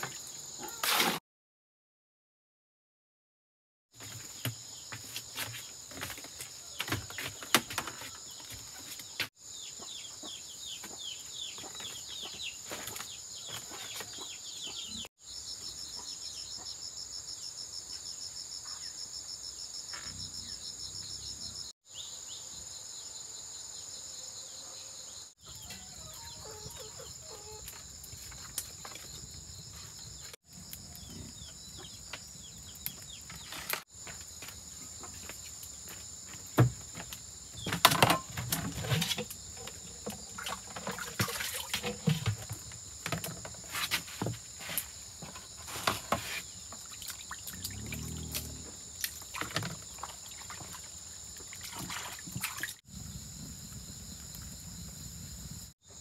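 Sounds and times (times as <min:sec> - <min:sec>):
insects droning: 0:15.2 - 0:56.0.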